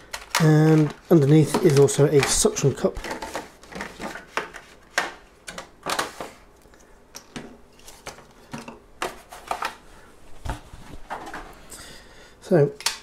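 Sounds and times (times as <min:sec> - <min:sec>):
plastic packaging crackling: 0:00.0 - 0:04.2.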